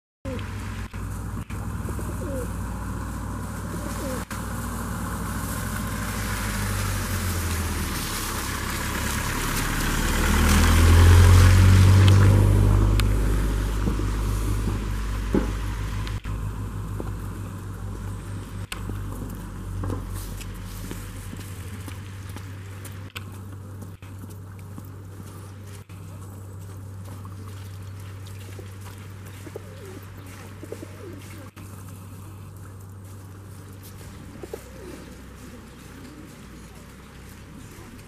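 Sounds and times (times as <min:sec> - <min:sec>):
car driving past on wet road: 0:00.3 - 0:23.0
steady low rumble: 0:11.0 - 0:38.0.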